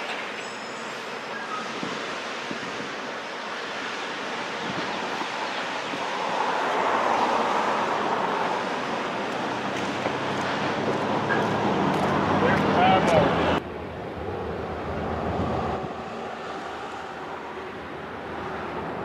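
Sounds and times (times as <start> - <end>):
freight train cars rolling: 0.0 - 5.8
wind on microphone: 1.6 - 3.2, 4.5 - 6.4, 14.0 - 17.3.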